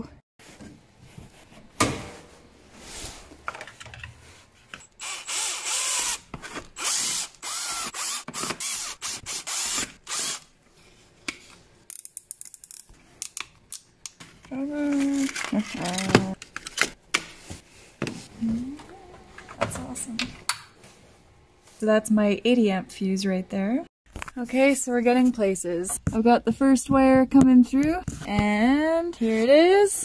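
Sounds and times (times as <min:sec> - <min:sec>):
hand tool ratcheting and clicking: 0:11.9 - 0:13.4.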